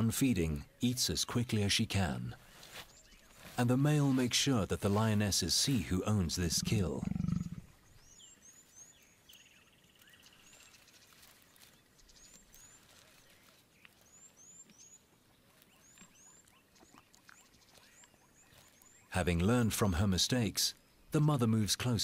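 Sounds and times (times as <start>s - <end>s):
small birds chirping: 5.7s - 21.9s.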